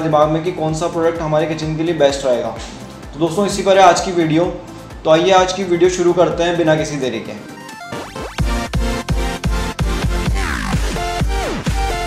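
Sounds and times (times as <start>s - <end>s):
heavy bass beat: 0.0s - 5.2s, 7.9s - 12.0s.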